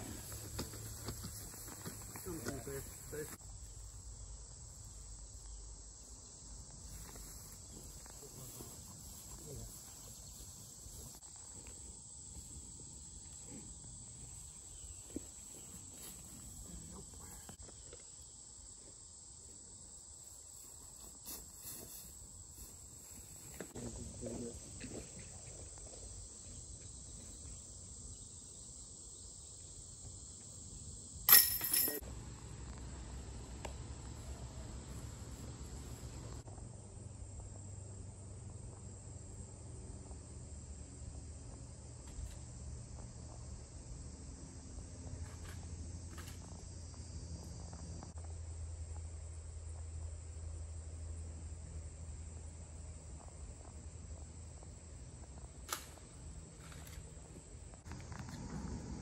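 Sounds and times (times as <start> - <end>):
background hiss: 0.0 - 45.4
crickets chirring: 0.0 - 59.0.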